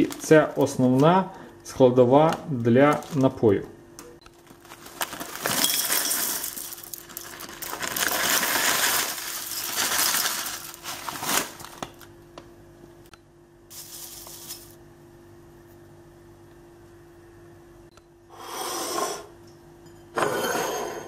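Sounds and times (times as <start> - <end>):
foil bag rustling: 0.0 - 1.2, 2.5 - 3.4, 4.4 - 12.1, 13.7 - 14.8
dried flowers rattling into bowl: 4.7 - 11.8, 13.7 - 14.8.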